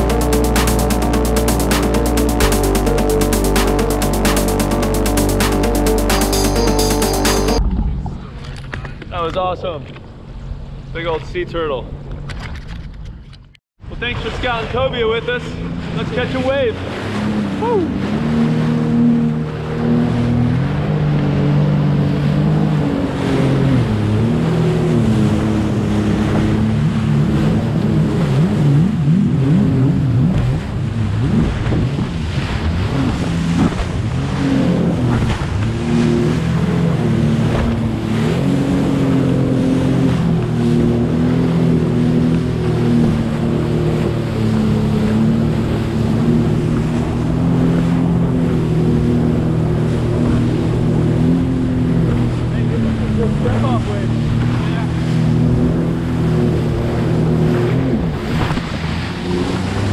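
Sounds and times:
personal watercraft engine: 0.0s - 59.9s
water splashing against hull: 13.8s - 59.9s.

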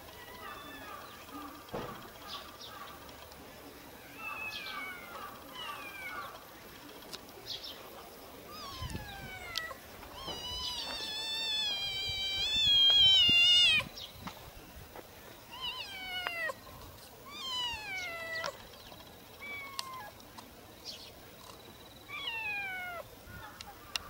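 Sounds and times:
cat meowing: 8.5s - 13.9s, 15.5s - 16.6s, 17.3s - 18.6s, 22.1s - 23.0s.

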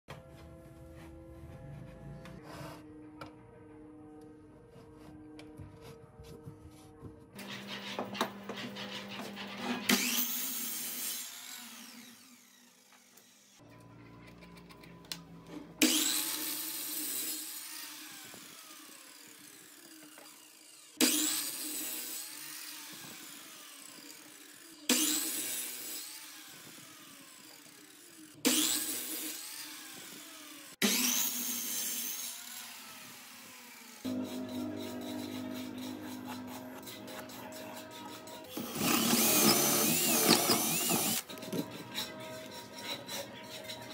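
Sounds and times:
miter saw cutting wood: 7.4s - 13.6s, 15.8s - 43.9s.

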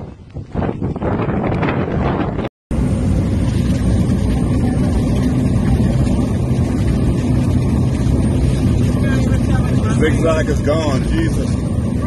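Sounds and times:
aircraft engines droning in cabin: 2.1s - 12.0s.

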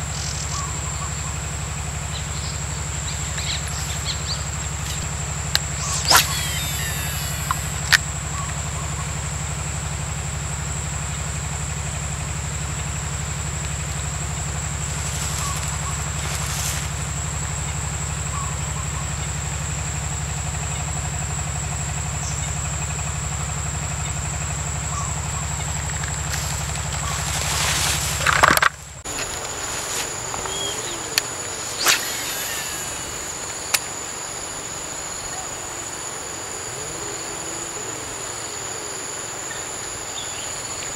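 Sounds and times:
high whine: 0.0s - 10.0s, 23.2s - 40.9s
low hum: 0.0s - 40.9s
low pulsing mechanical drone: 0.0s - 40.9s
sharp clicks: 4.8s - 8.0s.

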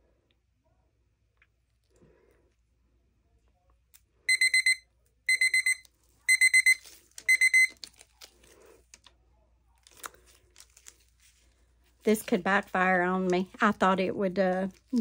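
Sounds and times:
digital timer alarm beeping: 4.3s - 7.8s.

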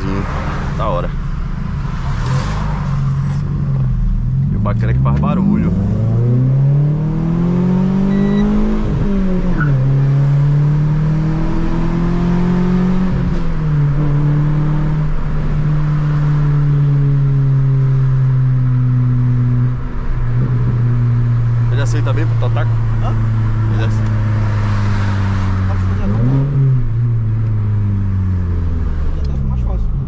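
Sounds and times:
car engine accelerating: 0.0s - 30.0s
short high beep: 8.1s - 8.6s.

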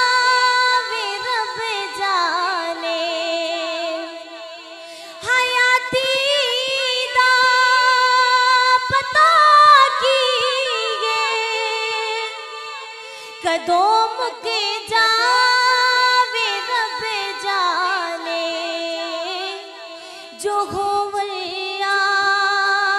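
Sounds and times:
woman singing unaccompanied: 0.0s - 22.9s.

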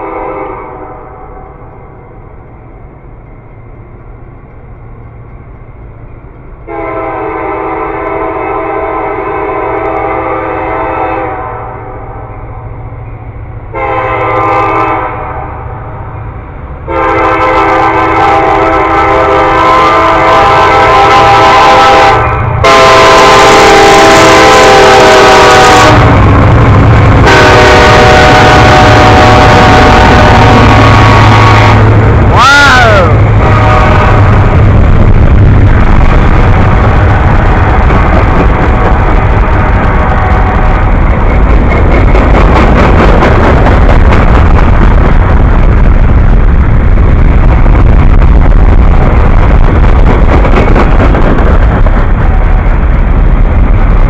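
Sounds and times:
locomotive air horn blasts: 0.0s - 1.2s, 6.7s - 12.0s, 13.7s - 15.5s, 16.9s - 26.2s, 27.2s - 34.5s
locomotive engine rumble: 0.0s - 54.0s
train wheels on rails: 0.0s - 54.0s.

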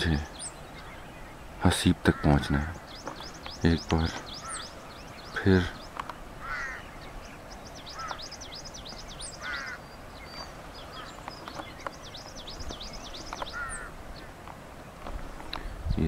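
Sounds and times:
harsh rasping bird call: 0.0s - 8.6s, 9.2s - 11.8s, 12.9s - 14.4s
birds chirping: 0.0s - 16.0s.

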